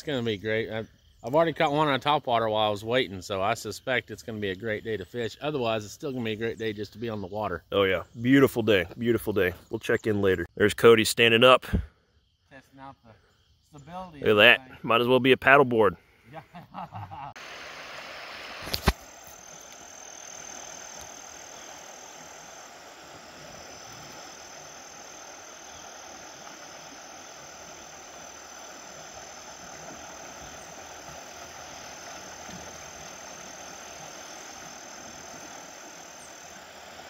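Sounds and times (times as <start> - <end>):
water running over rocks: 17.4 - 37.0.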